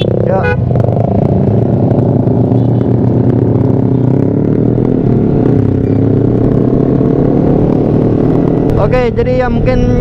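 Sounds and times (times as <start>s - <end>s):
motorcycle engine accelerating: 0.0s - 10.0s.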